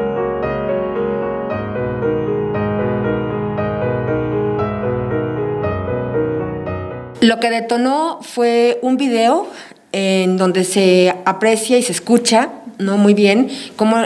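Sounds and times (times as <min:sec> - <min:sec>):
piano music: 0:00.0 - 0:07.8.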